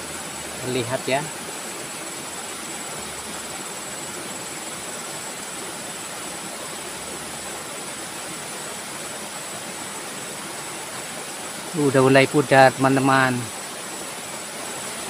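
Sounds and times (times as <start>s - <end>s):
high insect trill: 0.0s - 8.3s
flowing river water: 0.0s - 15.0s.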